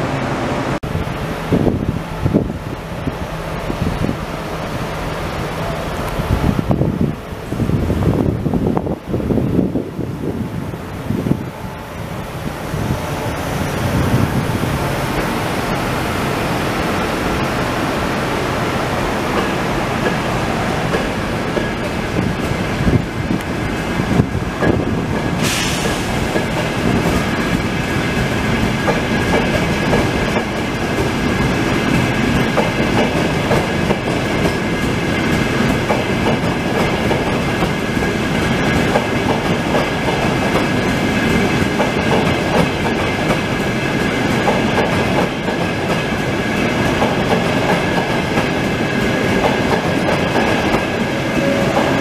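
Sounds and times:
train wheels clicking over rail joints: 19.3 - 23.6, 24.2 - 52.0.

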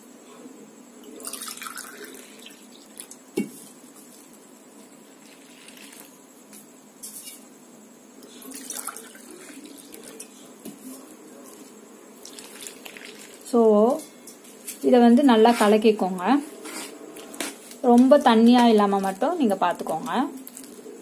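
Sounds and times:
water splashing into pot: 8.5 - 10.2.

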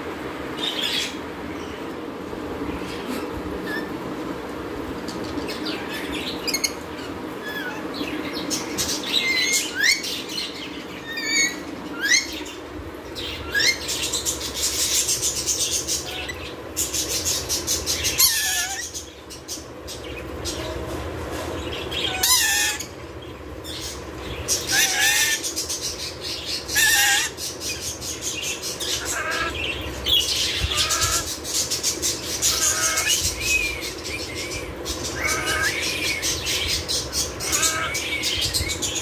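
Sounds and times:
lorikeets squeaking: 5.1 - 12.6, 13.2 - 20.8, 21.7 - 23.0, 23.6 - 39.0
wavering falling bird call: 28.8 - 31.4, 35.0 - 36.4.

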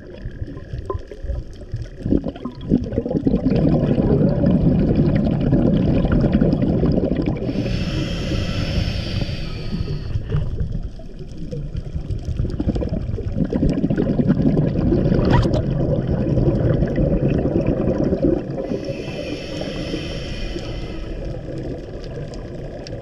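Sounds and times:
water churning underwater: 0.0 - 23.0
hiss: 7.4 - 10.5, 18.6 - 21.6.

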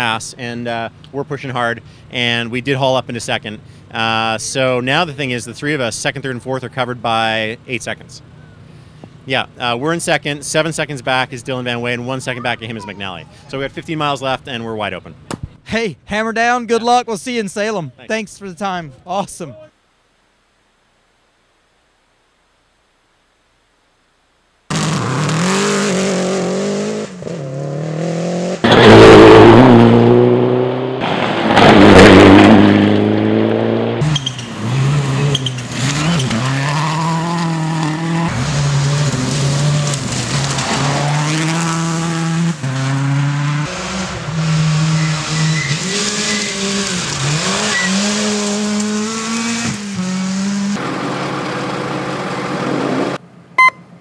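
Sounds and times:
rally car engines revving: 24.7 - 53.2.

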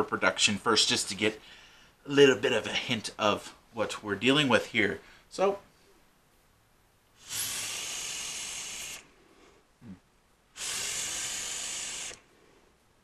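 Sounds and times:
vape coil hissing draws: 7.2 - 9.1, 10.6 - 12.2.

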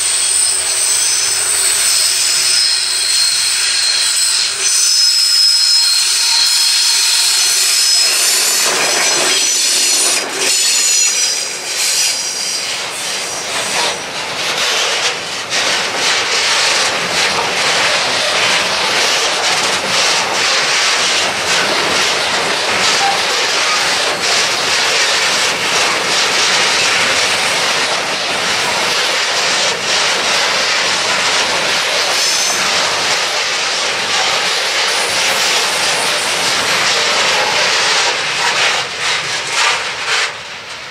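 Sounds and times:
diesel locomotive passing: 0.0 - 40.9.

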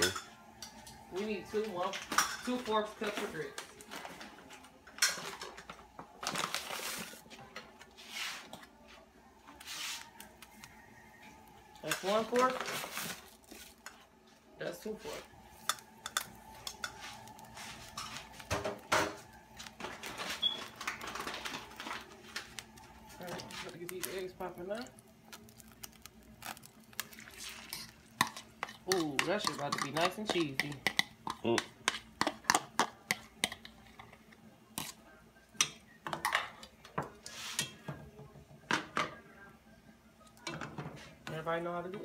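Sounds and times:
cookware and utensils clinking: 0.0 - 7.8, 11.2 - 14.1, 14.8 - 25.0, 27.1 - 39.2, 40.4 - 42.0
utensils knocking on skillet: 28.2 - 33.7.

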